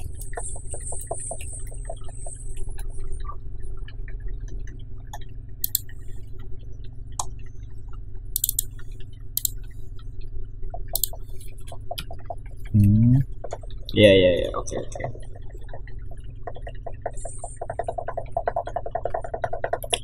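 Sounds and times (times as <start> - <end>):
low electrical hum: 0.0 - 20.0
mouse and keyboard clicks: 5.2 - 5.9, 8.4 - 8.7, 9.4 - 9.6, 11.0 - 11.2, 16.5 - 20.0.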